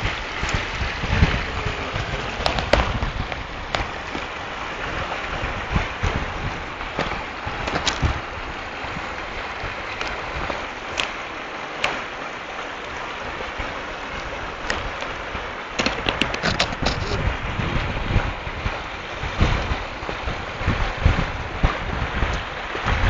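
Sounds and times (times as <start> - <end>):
river running over stones: 0.0 - 23.0
wind buffeting microphone: 0.0 - 23.0.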